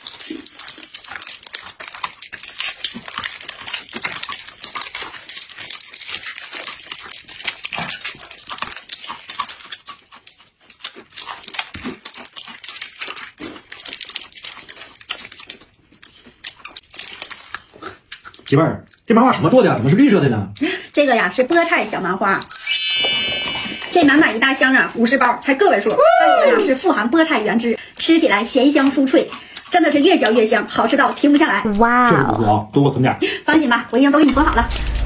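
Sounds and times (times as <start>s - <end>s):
plastic wrappers crinkling and tearing: 0.0s - 18.5s
crunchy snack being chewed: 0.0s - 19.9s, 28.0s - 31.6s.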